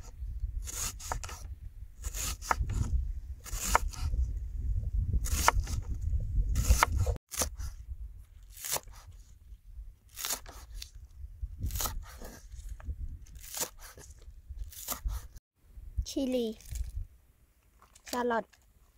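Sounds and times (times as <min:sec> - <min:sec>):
knife cutting on wooden board: 0:00.6 - 0:04.1, 0:05.2 - 0:05.9, 0:06.6 - 0:07.8, 0:11.6 - 0:12.6, 0:13.4 - 0:15.3.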